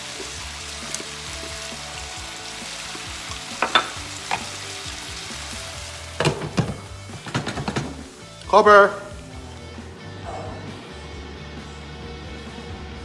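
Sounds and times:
vegetables sizzling in a pan: 0.0s - 9.3s.

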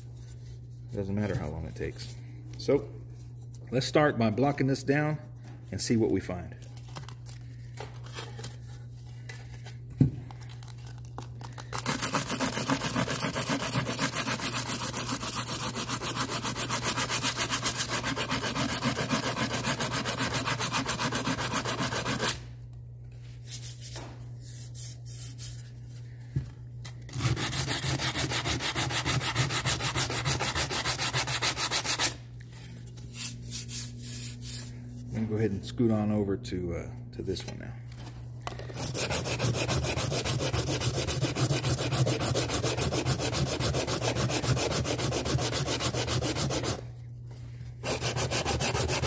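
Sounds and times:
sandpaper block sanding metal: 11.8s - 22.4s, 27.2s - 32.2s, 38.8s - 46.8s, 47.8s - 49.0s.

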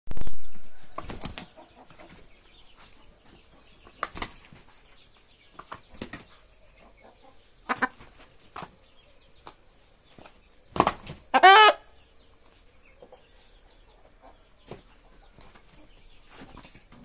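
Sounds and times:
rooster wings flapping: 0.2s - 1.6s.

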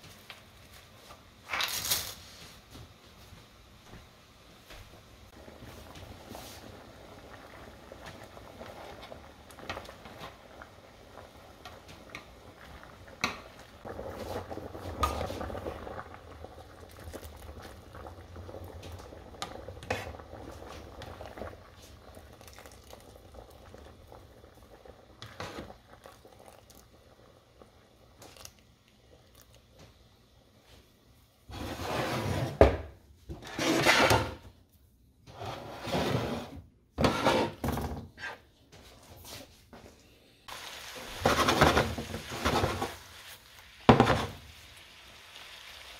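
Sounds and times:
water boiling in a pot: 4.6s - 34.7s, 40.4s - 45.9s
pasta splashing: 5.3s - 30.0s, 40.5s - 45.9s.

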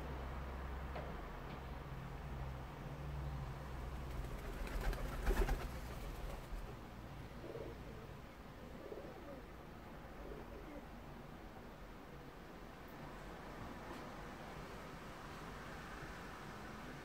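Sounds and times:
pigeon cooing: 7.4s - 8.1s, 8.7s - 9.5s, 10.2s - 10.9s.

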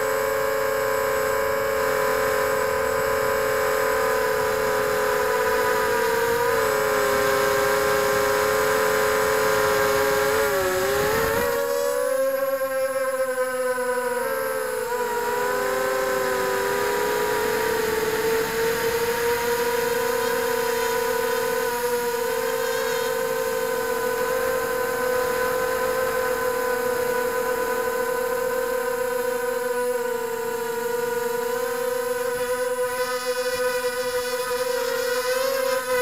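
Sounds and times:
drone propellers whining: 0.0s - 12.6s, 13.3s - 26.4s.

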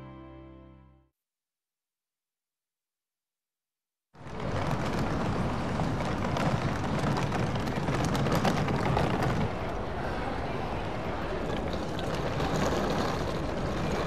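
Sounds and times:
suitcase wheels rolling on paving: 4.2s - 14.0s
traffic rumble: 4.2s - 14.0s.

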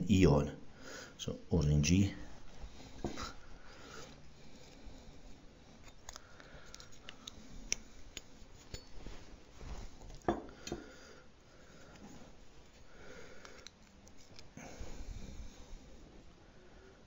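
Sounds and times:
handling noise with small clicks: 2.5s - 10.9s, 11.8s - 14.6s.

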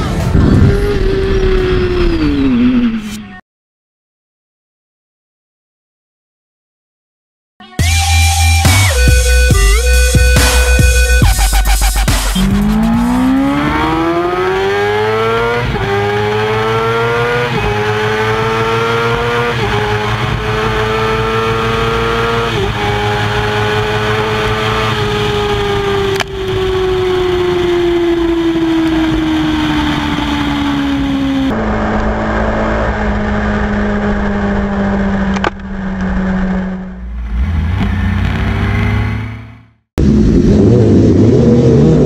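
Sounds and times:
motorcycle engine accelerating: 0.0s - 3.3s, 7.8s - 42.0s.

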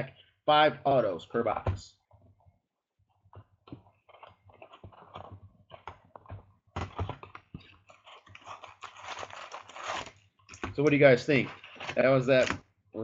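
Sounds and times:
plastic wrap tearing: 8.1s - 10.2s.

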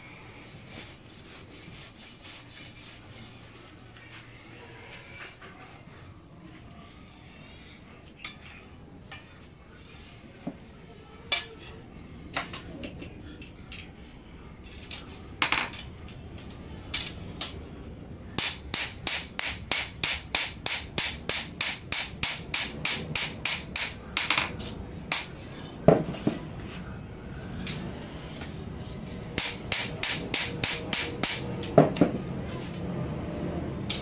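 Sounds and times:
hammer striking steel on anvil: 18.4s - 24.5s, 29.4s - 32.1s.

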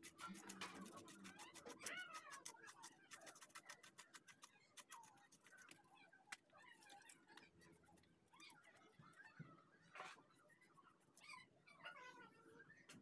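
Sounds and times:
knife scraping fish scales: 0.0s - 5.7s.

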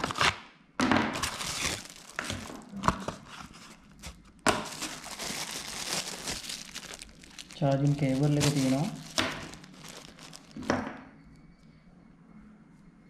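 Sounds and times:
packaging crinkling and rustling: 0.0s - 0.3s, 1.1s - 10.9s.

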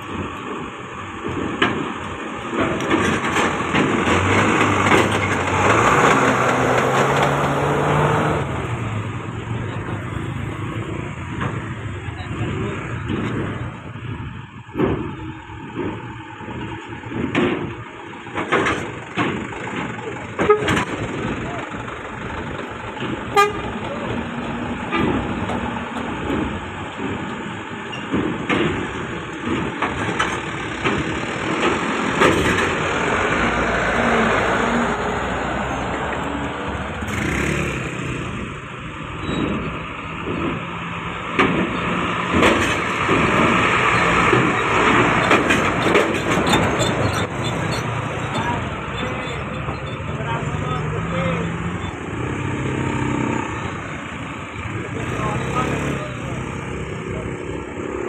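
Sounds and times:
vehicle engines running: 0.0s - 58.0s
vehicles on steel ramp: 0.0s - 58.0s
horn toots: 20.4s - 20.9s, 23.3s - 23.8s.

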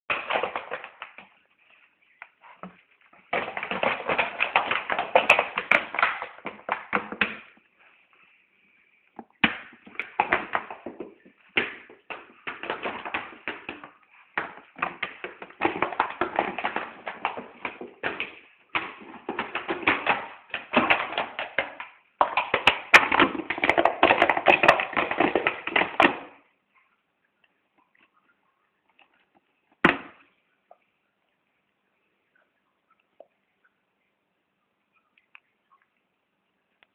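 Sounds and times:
dog chewing plastic bottle: 3.3s - 7.4s, 9.9s - 26.4s.

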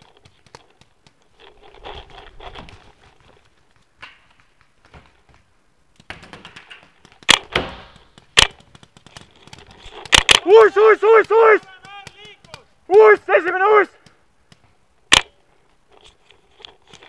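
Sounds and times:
clothing and gear rustling: 0.0s - 5.5s
paintball gun cracks: 6.0s - 10.6s, 14.0s - 15.4s.

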